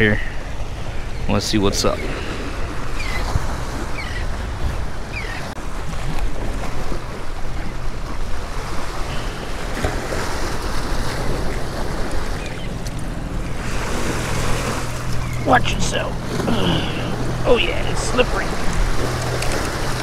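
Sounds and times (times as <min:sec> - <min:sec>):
wind buffeting microphone: 0:00.0 - 0:20.0
surf splashing against rocks: 0:05.6 - 0:20.0.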